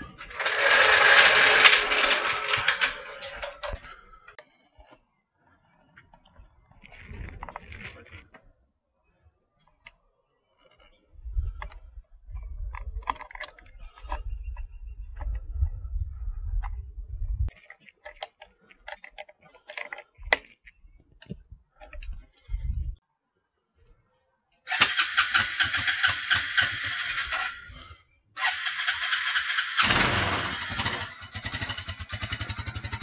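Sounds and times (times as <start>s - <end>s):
clicks of tightening a cable: 17.5s - 22.6s.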